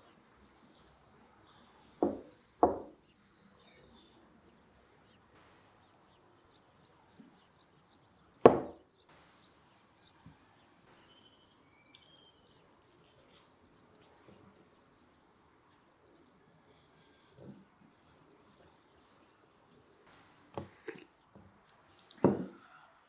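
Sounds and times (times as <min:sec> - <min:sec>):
faint bird chirps: 0:00.0 - 0:23.0
glass cup knocking on wooden table: 0:02.0 - 0:03.0, 0:08.5 - 0:08.8, 0:22.2 - 0:22.6.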